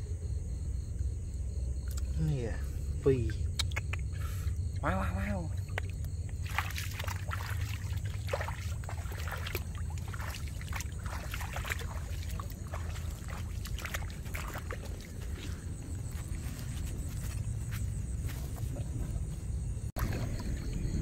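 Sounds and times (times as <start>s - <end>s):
steady low rumble: 0.0s - 21.0s
feet splashing through water: 5.5s - 19.1s, 19.9s - 21.0s.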